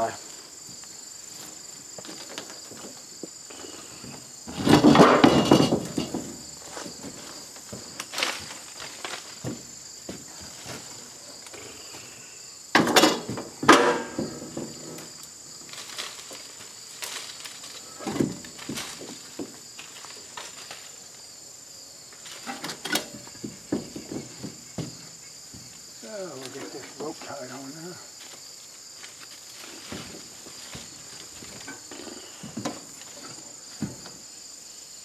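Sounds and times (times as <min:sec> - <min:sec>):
insects buzzing: 0:00.0 - 0:35.0
rope rustling through leafy branches: 0:06.5 - 0:11.4, 0:15.1 - 0:21.3, 0:28.2 - 0:31.7.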